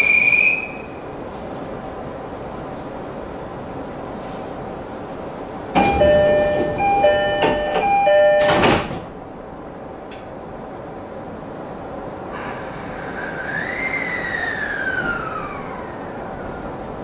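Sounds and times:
train doors shutting: 4.0s - 10.8s, 11.6s - 17.0s
two-tone door chime: 5.8s - 8.9s.

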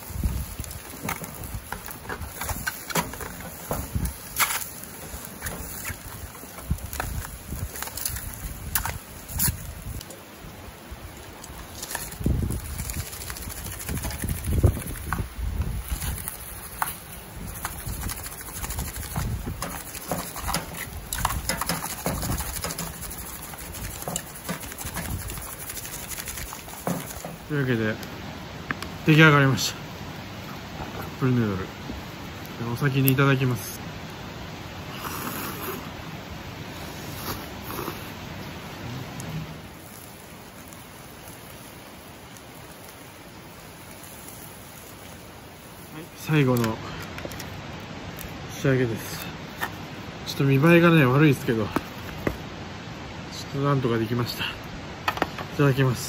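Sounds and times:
steady hiss: 0.0s - 56.0s
seasoning shaker shaking: 11.6s - 27.5s
tongs clicking on foil tray: 19.6s - 23.0s.

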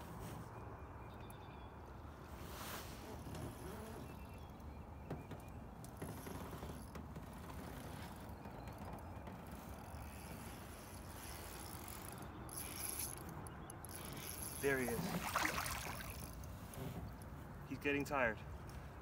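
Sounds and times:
fishing reel mechanism: 10.8s - 15.0s.

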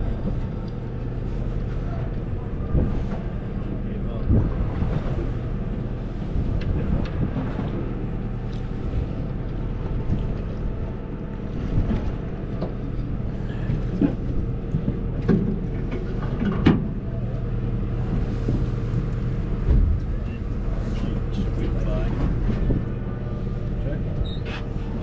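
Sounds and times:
boat engine humming: 0.0s - 25.0s
wind noise: 4.2s - 5.6s, 6.2s - 8.2s.

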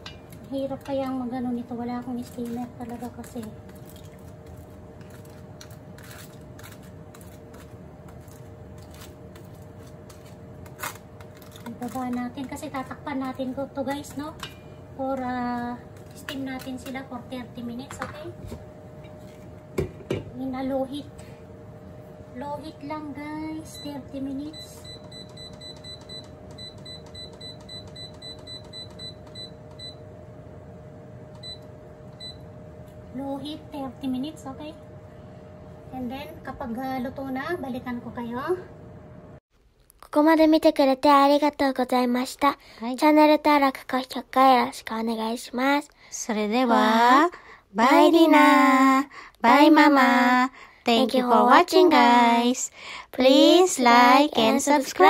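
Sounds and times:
aluminium foil crinkling: 1.9s - 14.0s
spoon scraping: 2.9s - 12.7s.

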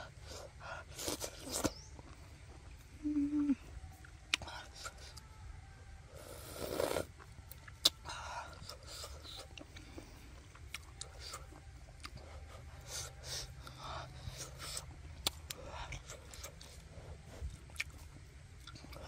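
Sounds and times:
person chewing food: 6.4s - 19.0s.

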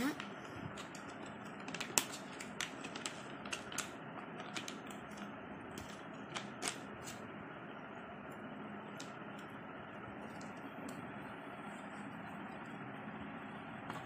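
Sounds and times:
plastic packet crinkling and clicking: 0.2s - 6.8s.

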